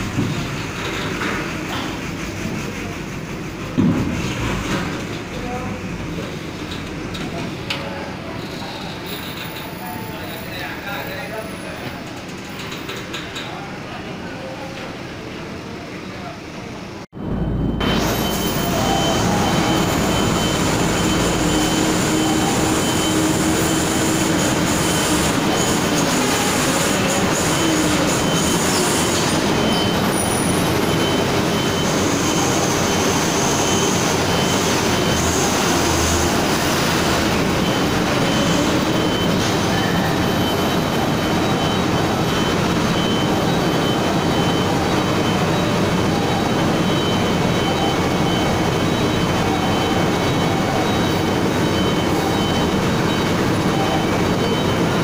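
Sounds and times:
truck diesel engines pulling: 0.0s - 55.0s
machinery din: 17.2s - 55.0s.

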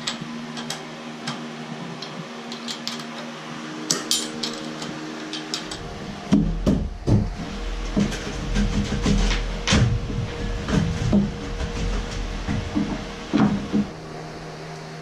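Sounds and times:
hand tools clinking on metal: 2.0s - 3.3s, 3.9s - 5.8s
heavy knocks: 6.3s - 13.9s.

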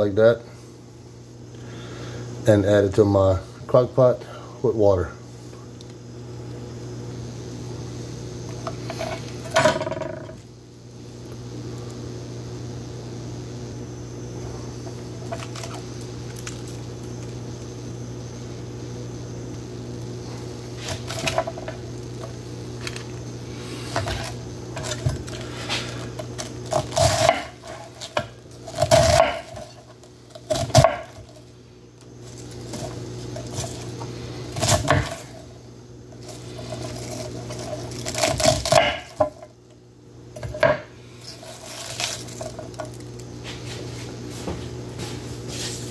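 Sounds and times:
steady low hum: 0.0s - 45.9s
knife chopping on wooden board: 26.8s - 29.6s, 30.5s - 31.2s, 38.4s - 39.3s.

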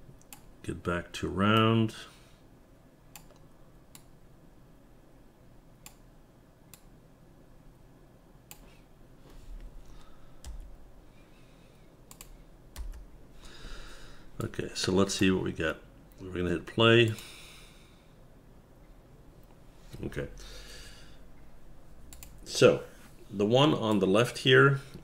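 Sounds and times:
keyboard and mouse clicks: 3.1s - 4.1s, 5.8s - 6.0s, 8.5s - 8.7s, 10.4s - 10.7s, 12.1s - 13.1s, 22.1s - 22.4s.

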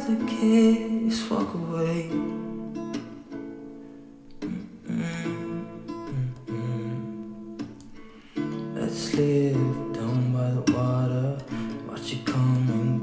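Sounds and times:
strummed acoustic guitar chords: 0.0s - 13.0s.

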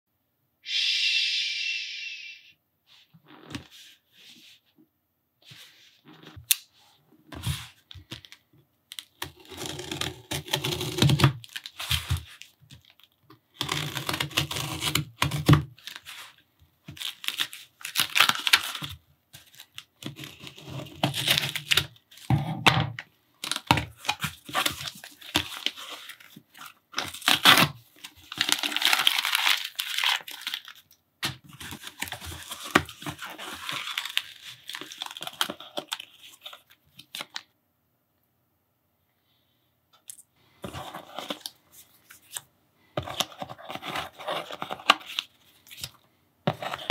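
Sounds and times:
packing tape tearing: 8.9s - 12.4s, 13.6s - 16.2s, 17.0s - 21.9s, 23.4s - 30.8s, 31.4s - 37.4s
cardboard box opened by hand: 43.0s - 45.9s.

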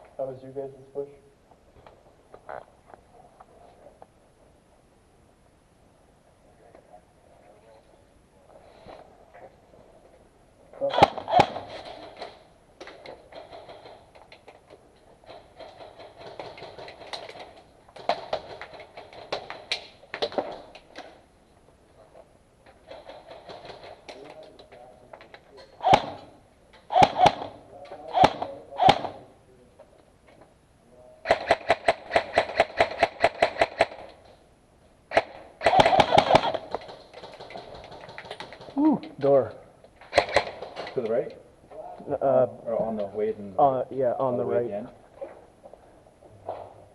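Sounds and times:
airsoft guns firing bursts: 10.8s - 12.4s, 15.3s - 20.6s, 25.8s - 29.3s, 31.2s - 34.2s, 35.1s - 38.8s, 40.1s - 40.8s
sharp gun cracks: 10.8s - 14.4s, 25.8s - 29.2s, 31.3s - 34.2s, 35.1s - 38.8s, 40.0s - 41.0s.

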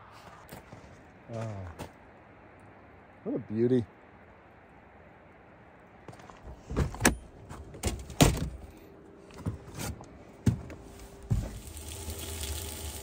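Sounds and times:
food sizzling in a pan: 11.6s - 13.0s.

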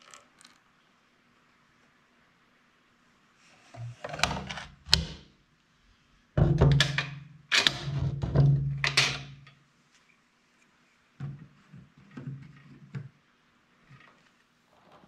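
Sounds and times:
pail thunking on concrete floor: 6.4s - 7.2s, 7.8s - 9.4s.

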